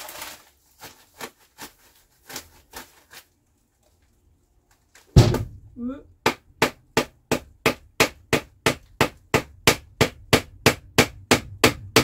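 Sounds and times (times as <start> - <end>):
rubber mallet knocking wooden stake: 6.2 - 12.0.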